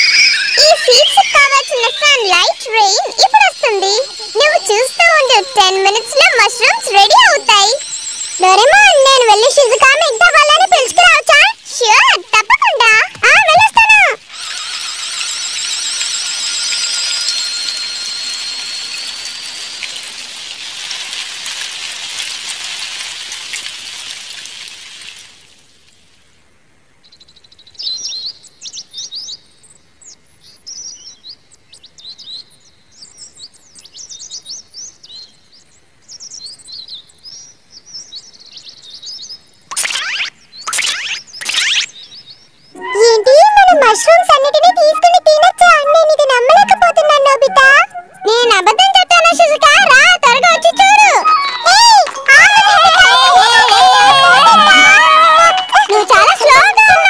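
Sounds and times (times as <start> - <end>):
cartoon birds chirping: 0.0 - 21.6, 39.1 - 57.0
high hiss with whistle: 0.0 - 23.9, 39.7 - 41.9, 42.8 - 57.0.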